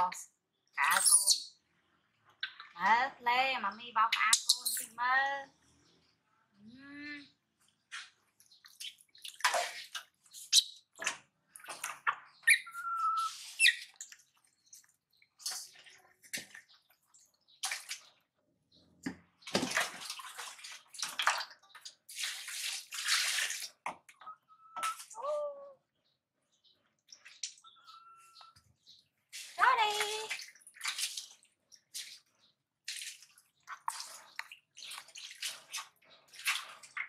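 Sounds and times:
monkey squeaking: 0.8 - 1.5, 4.2 - 5.0, 12.4 - 14.0
water splashing in a tub: 7.7 - 25.2, 27.0 - 27.8, 28.6 - 37.0.

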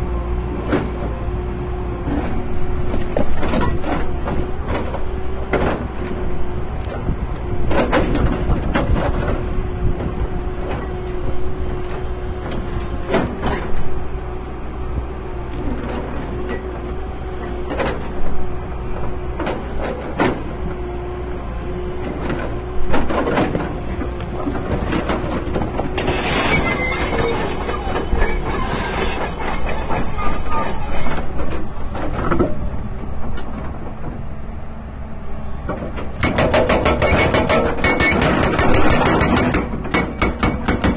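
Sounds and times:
excavator engine whine: 0.0 - 40.9
high metallic screech: 26.0 - 31.4
heavy metallic knocks: 35.6 - 40.9.

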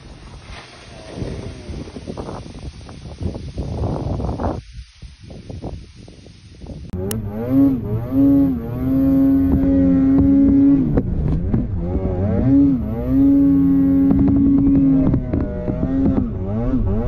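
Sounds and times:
snowmobile engine revving: 7.0 - 17.0.

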